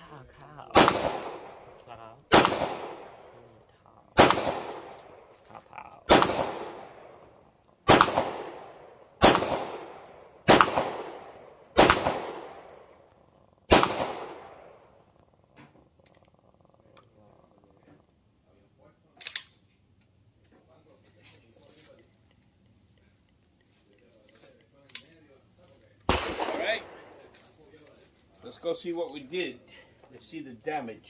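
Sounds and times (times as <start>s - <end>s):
pistol shots echoing: 0.7s - 3.4s, 4.2s - 5.4s, 6.0s - 13.1s, 13.7s - 15.0s, 26.1s - 27.3s.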